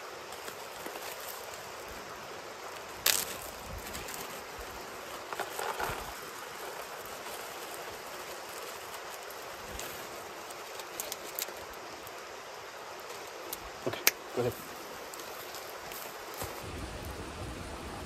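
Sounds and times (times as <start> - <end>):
plastic bag rustling: 0.0 - 12.2, 14.4 - 16.7
stream rushing: 0.0 - 18.0.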